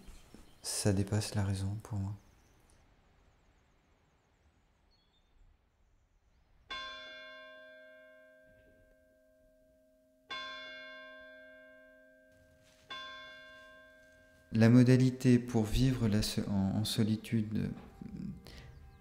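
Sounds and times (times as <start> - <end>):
church bell ringing: 6.7 - 19.0.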